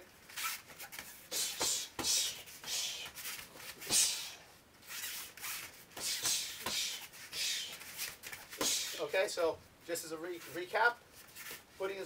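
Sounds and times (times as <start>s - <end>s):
bare feet on foam mats: 0.0s - 9.2s, 10.2s - 12.0s
gloved punches and kicks landing: 1.3s - 3.0s, 3.8s - 4.4s, 5.9s - 7.6s, 8.2s - 9.0s.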